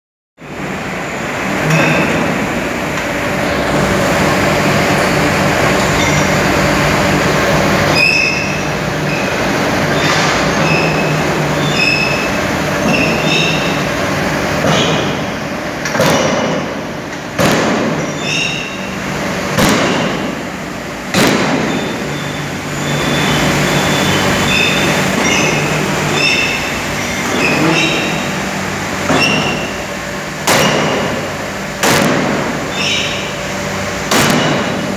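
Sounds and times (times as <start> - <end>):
forging presses humming: 0.4 - 34.9
short high squeaks: 5.9 - 6.4, 7.9 - 13.9, 18.0 - 19.0, 21.6 - 28.5, 29.1 - 29.9, 32.7 - 33.4
heavy press strikes: 7.9 - 28.3, 28.9 - 33.4, 34.0 - 34.9.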